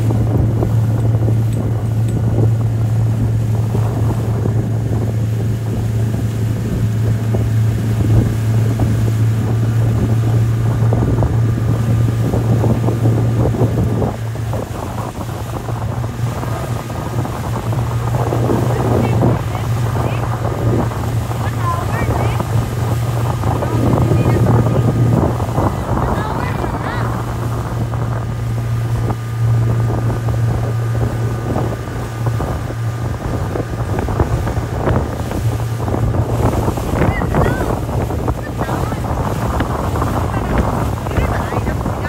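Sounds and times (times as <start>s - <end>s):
outboard motor droning: 0.0s - 42.0s
rush of boat wake: 0.0s - 42.0s
wind buffeting microphone: 0.0s - 42.0s.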